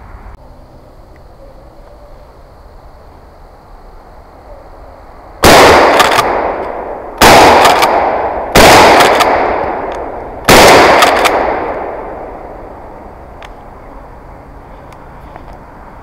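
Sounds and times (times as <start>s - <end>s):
shotgun shots echoing: 5.4s - 12.5s.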